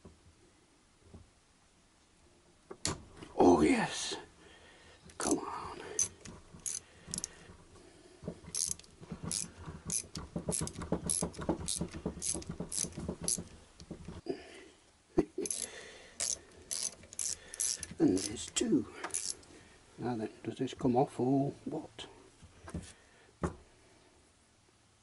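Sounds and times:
socket ratchet clicking: 0:06.0 - 0:07.3, 0:08.5 - 0:13.5, 0:15.4 - 0:19.4.

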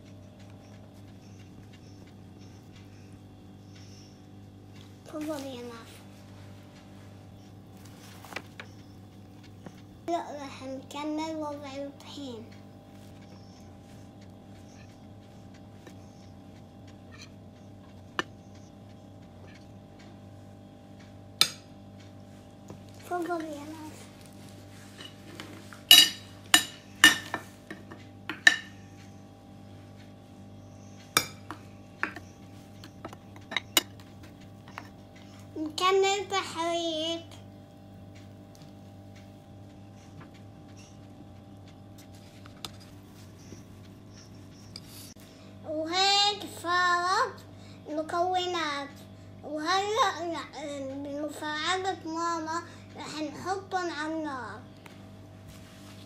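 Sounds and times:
low steady hum: 0:00.0 - 0:56.0
metal spoon clinking against glass: 0:25.9 - 0:27.4.

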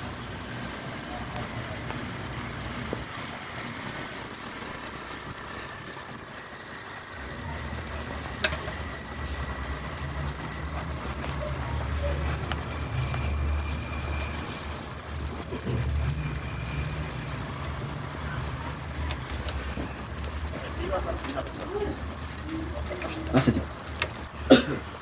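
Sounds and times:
motorcycle engine rumble: 0:00.0 - 0:25.0
road and wind noise: 0:00.0 - 0:25.0.

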